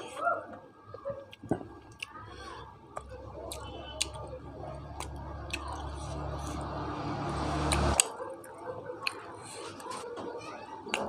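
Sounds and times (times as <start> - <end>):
close chewing mouth sounds: 0.9 - 10.0.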